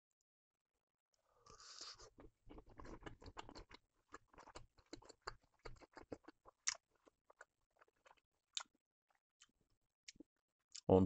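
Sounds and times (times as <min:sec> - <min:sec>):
person chewing: 0:01.5 - 0:10.8.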